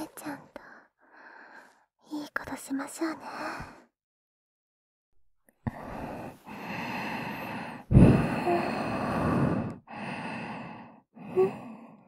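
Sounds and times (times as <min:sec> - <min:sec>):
woman breathing close to microphone: 0:05.6 - 0:12.0.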